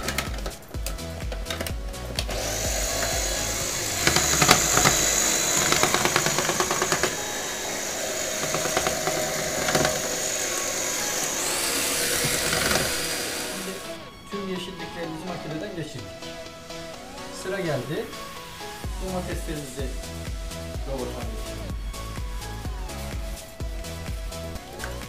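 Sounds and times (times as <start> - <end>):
food processor motor whine: 0.0 - 14.1.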